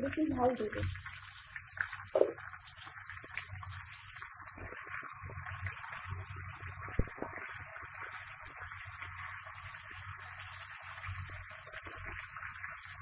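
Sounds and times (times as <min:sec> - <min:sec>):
frying sizzle: 0:00.0 - 0:13.0.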